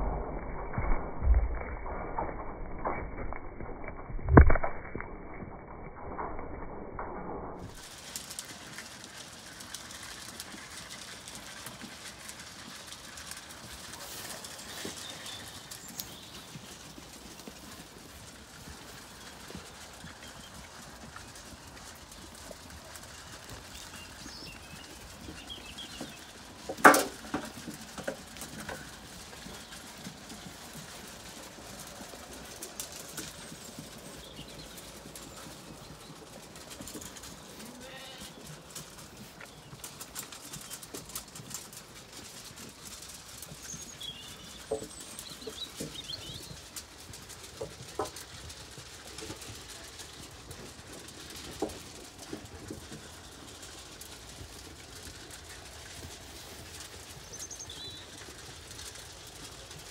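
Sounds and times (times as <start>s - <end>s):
sheep crunching feed in metal trough: 7.6s - 59.9s
birds calling: 14.0s - 17.6s, 23.0s - 27.2s.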